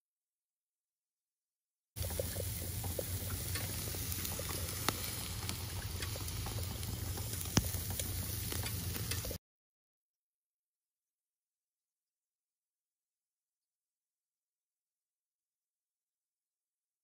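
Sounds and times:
meat sizzling on grill: 2.0 - 9.4
sharp pops and cracks: 2.0 - 9.4.

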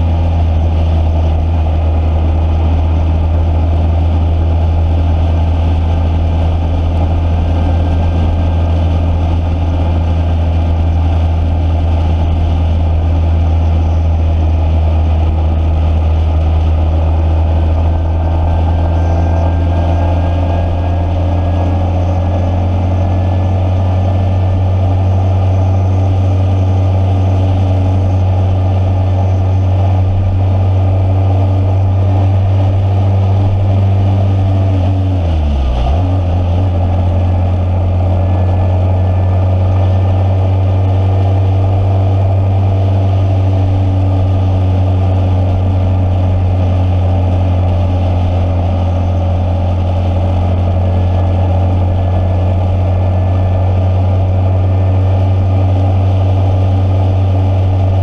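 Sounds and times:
vehicle engine droning: 0.0 - 58.0.

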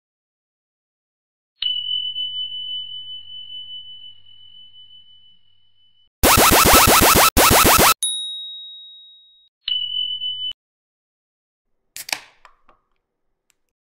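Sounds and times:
quick falling tones stutter: 6.2 - 8.0
bell-like ding: 8.0 - 9.5.

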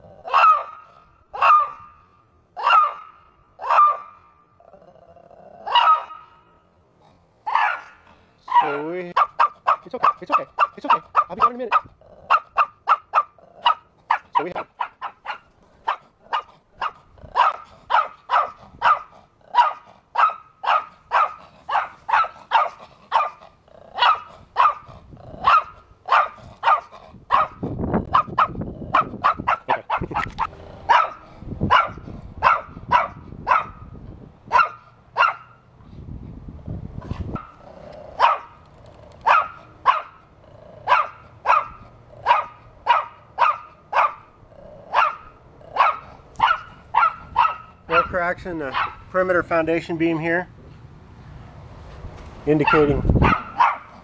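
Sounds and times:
small dog barking: 0.2 - 2.0, 2.6 - 4.2, 5.6 - 6.4, 7.4 - 23.4, 24.0 - 33.9, 34.5 - 35.6, 38.2 - 38.6, 39.2 - 40.2, 40.8 - 44.3, 44.9 - 49.1, 52.6 - 54.0.

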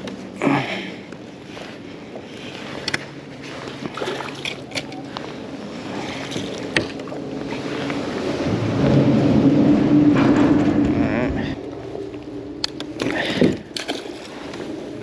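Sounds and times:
fish splashing and thrashing: 2.8 - 8.4, 11.6 - 15.0
water slaps: 13.0 - 14.6.

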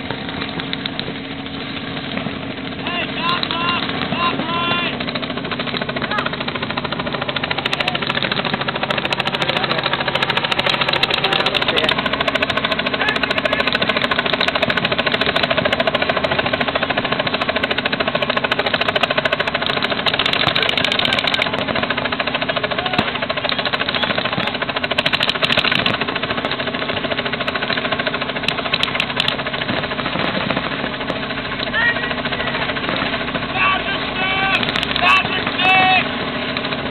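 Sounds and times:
paintball markers firing rapidly: 3.3 - 16.5, 17.1 - 31.8, 34.5 - 35.7.

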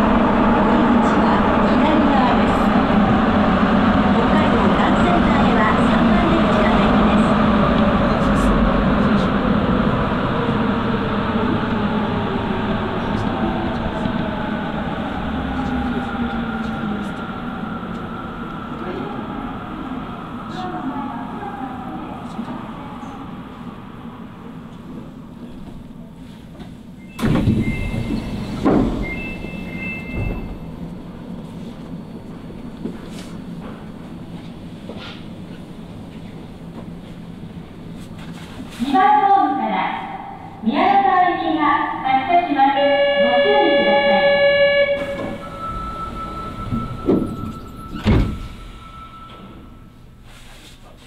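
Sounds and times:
subway train rumble inside car: 0.0 - 51.0
subway doors thudding shut: 26.5 - 37.0, 42.8 - 50.2.

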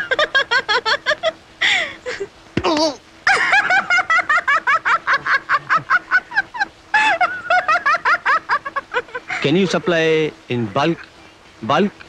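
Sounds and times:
woman laughing shrilly: 0.0 - 2.3, 3.3 - 9.9.

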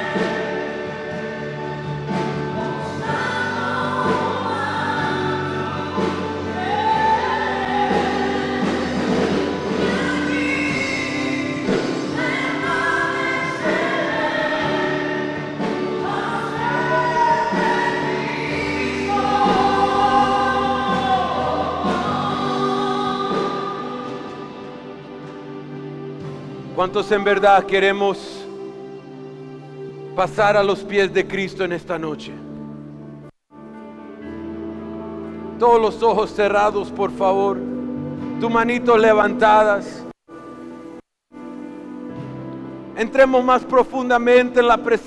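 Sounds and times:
gospel singing: 0.0 - 28.6.

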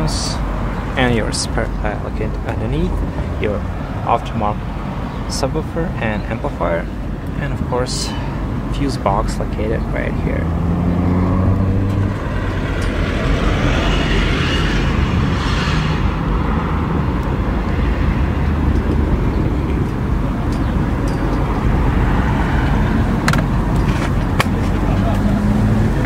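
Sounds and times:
vehicle low rumble: 0.0 - 26.0.

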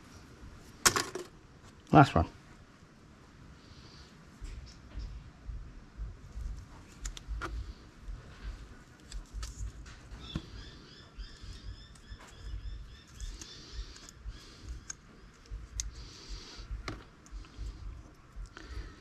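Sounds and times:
wire snapping clicks and thumps: 6.4 - 7.7, 11.9 - 16.1
bird chirping: 10.1 - 15.0.

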